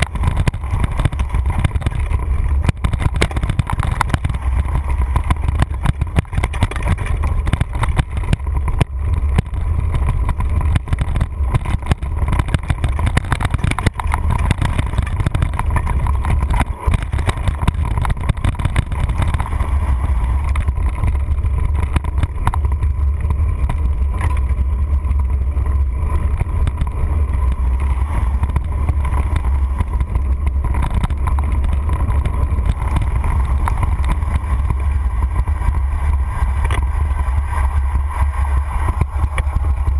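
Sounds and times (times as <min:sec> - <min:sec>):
bike rattles and knocks: 0:00.0 - 0:39.9
wind buffeting microphone: 0:00.0 - 0:39.9.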